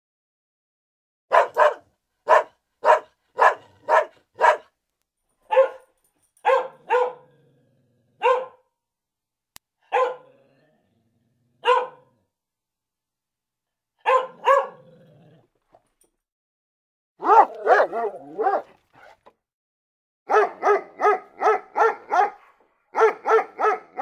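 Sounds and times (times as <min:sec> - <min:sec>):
dog barking: 0:01.3 - 0:04.8, 0:05.4 - 0:07.4, 0:08.2 - 0:08.7, 0:09.8 - 0:10.4, 0:11.6 - 0:12.2, 0:14.0 - 0:14.9, 0:17.2 - 0:19.3, 0:20.3 - 0:24.0.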